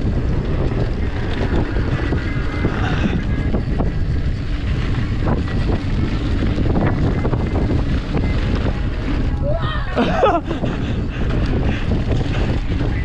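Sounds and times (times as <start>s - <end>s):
bike tyres rolling over trail: 0.0s - 13.0s
wind buffeting microphone: 0.0s - 13.0s.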